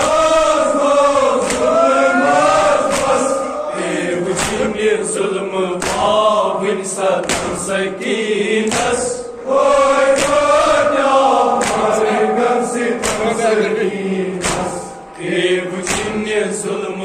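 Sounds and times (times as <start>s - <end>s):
men chanting a lament in chorus: 0.0s - 17.0s
sharp beat: 10.2s - 15.2s.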